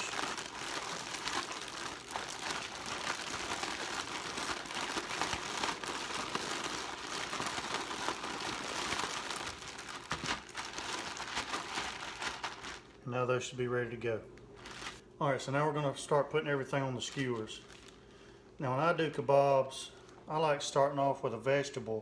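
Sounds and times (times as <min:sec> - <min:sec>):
plastic bag crinkling: 0:00.0 - 0:13.1, 0:14.5 - 0:15.0, 0:16.7 - 0:18.3.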